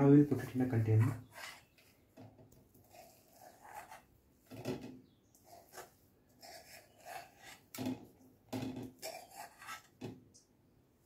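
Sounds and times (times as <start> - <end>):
metal spoon scraping a pan: 0.2 - 1.9, 2.8 - 4.1, 5.4 - 7.9, 8.7 - 10.0.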